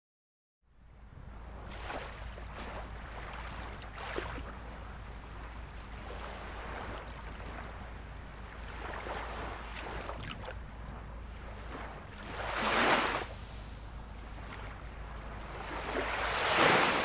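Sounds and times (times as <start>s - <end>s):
ocean surf breaking on rocks: 11.7s - 13.8s, 15.8s - 17.0s.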